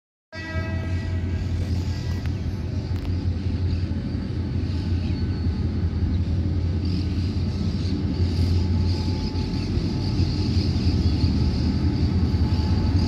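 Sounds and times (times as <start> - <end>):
diesel locomotive engine rumble: 0.3 - 13.0.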